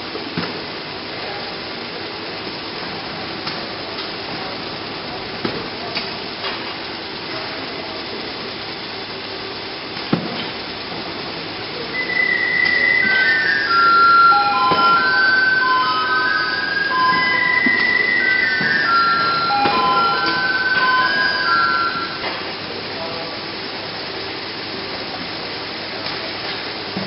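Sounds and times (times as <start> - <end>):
conveyor humming: 0.0 - 27.0
simple high tune: 11.9 - 22.5.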